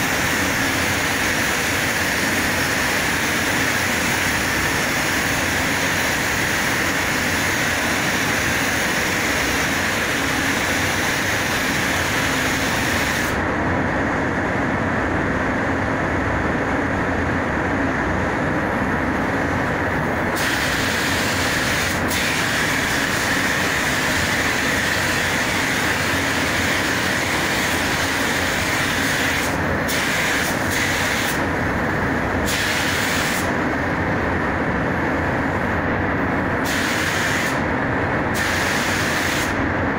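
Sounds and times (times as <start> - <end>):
spray booth air flow: 0.0 - 13.5, 19.0 - 39.9
paint spray gun hissing: 20.4 - 31.4, 36.6 - 37.6.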